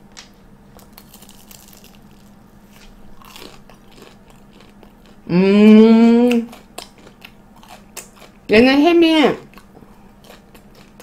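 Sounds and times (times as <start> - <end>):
crunchy bite: 0.8 - 5.2
closed-mouth chewing: 3.2 - 8.5, 9.4 - 11.0
person humming mmm: 5.2 - 6.6.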